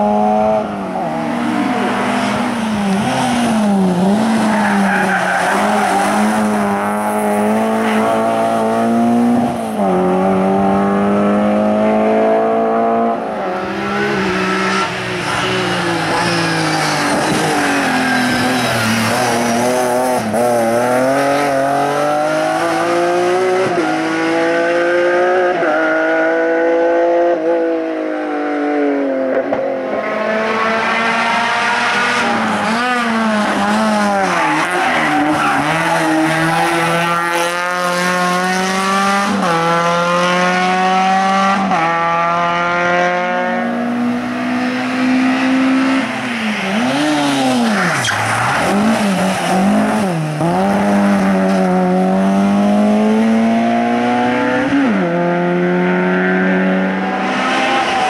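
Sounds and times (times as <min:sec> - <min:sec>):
race car engines revving: 0:00.0 - 0:58.0.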